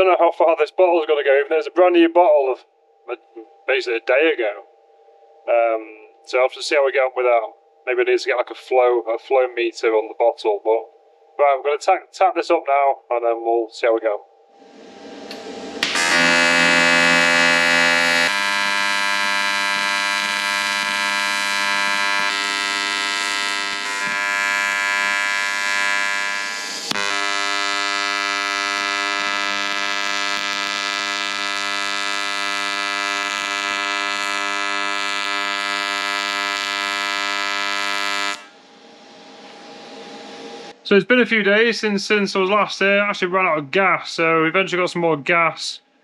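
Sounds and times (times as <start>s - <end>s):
welding arc buzzing: 14.6s - 38.6s.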